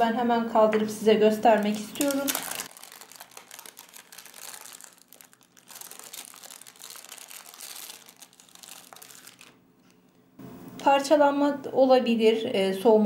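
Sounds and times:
baking paper crinkling: 1.4 - 10.2.

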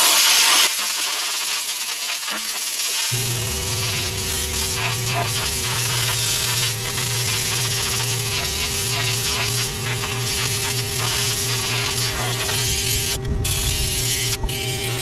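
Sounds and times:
air compressor running: 3.1 - 15.0.

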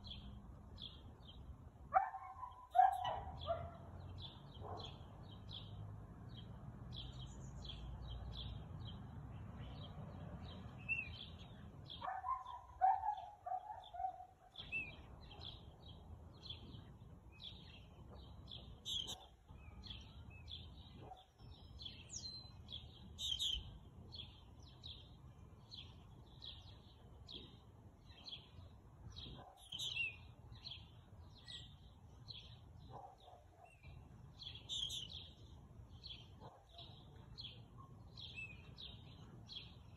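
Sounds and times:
songbirds chirping: 0.0 - 39.9
lower-pitched bird cry: 2.0 - 5.0, 29.2 - 31.8, 32.9 - 35.4.

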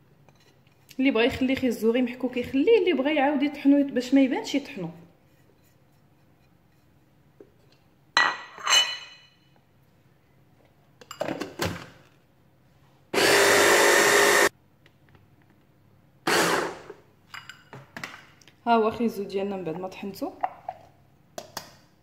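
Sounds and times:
clinks and scraping on a plate: 8.2 - 9.4
hand blender chopper running: 13.2 - 14.5, 16.3 - 16.9.

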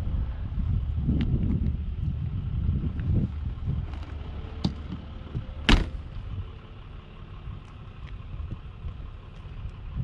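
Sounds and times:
wind on microphone: 0.0 - 4.3
cabin door thump: 5.7 - 6.0.

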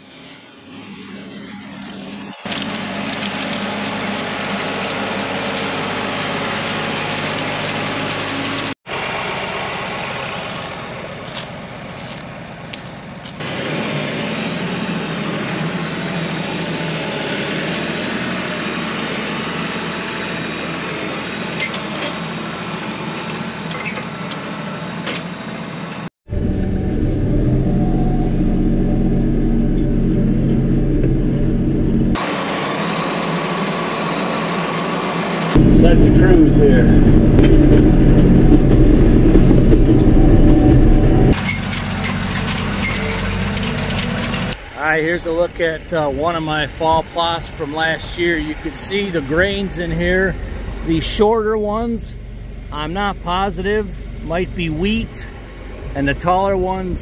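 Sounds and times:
tractor diesel engine running: 0.9 - 57.0
constant rushing noise: 28.2 - 57.0.

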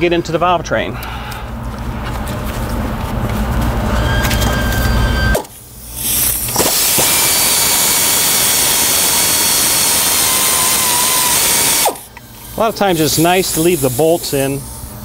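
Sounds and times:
air ratchet spinning: 5.3 - 14.7.

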